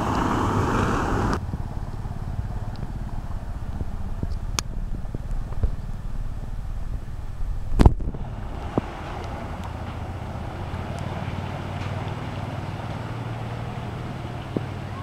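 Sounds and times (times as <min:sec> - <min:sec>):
wind rumble on microphone: 0:00.0 - 0:11.4
car tyres splashing through water: 0:00.0 - 0:15.0.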